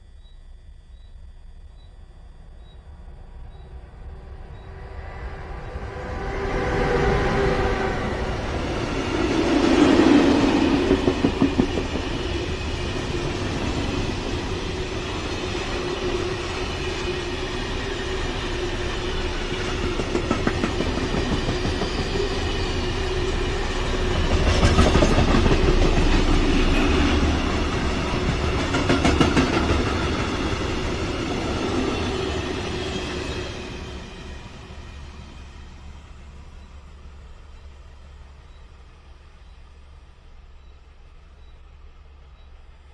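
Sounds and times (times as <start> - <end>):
freight train rumbling past: 2.6 - 42.9
wheels clickety-clack on rail joints: 8.4 - 34.3.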